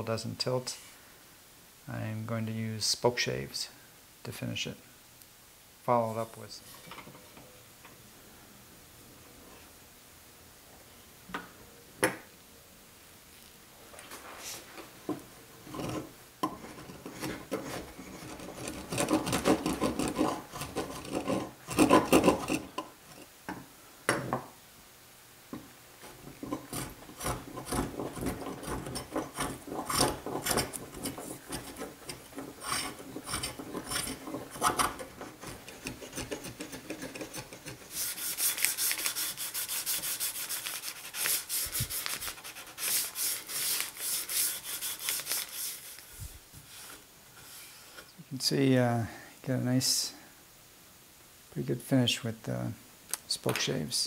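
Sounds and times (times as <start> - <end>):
spokeshave shaving wood: 16.8 - 22.8, 26.1 - 46.0
hand sanding wood: 17.1 - 22.7, 26.4 - 46.9.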